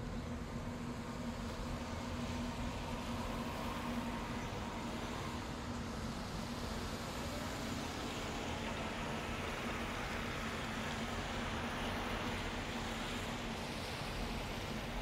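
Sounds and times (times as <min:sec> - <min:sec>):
city traffic rush: 0:00.0 - 0:15.0
constant low hum: 0:00.0 - 0:15.0.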